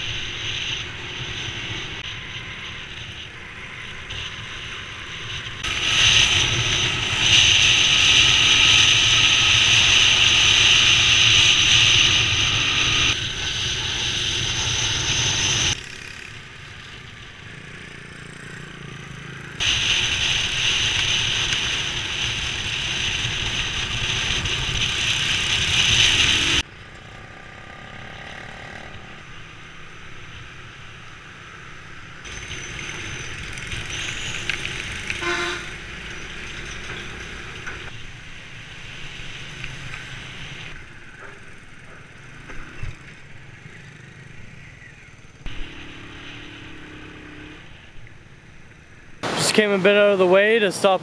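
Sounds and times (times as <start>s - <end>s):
wind rushing over microphone: 0.0s - 15.8s, 19.6s - 26.6s
short horn beep: 35.2s - 35.7s.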